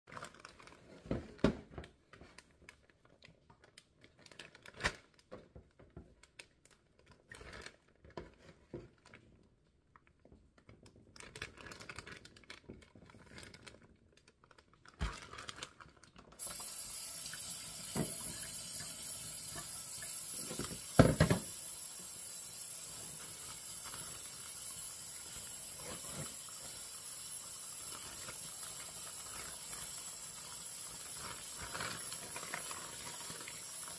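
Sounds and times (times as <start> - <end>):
plastic bag crinkling: 0.1 - 1.4, 2.4 - 5.2, 10.6 - 16.6, 27.8 - 33.9
tap water running into a sink: 16.4 - 33.9.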